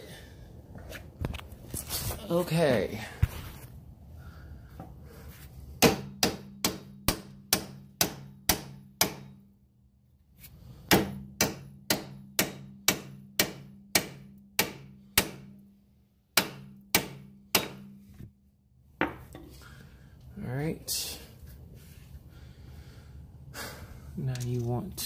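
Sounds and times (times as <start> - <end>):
hammer striking steel: 5.8 - 9.4, 10.9 - 15.6, 16.4 - 18.1.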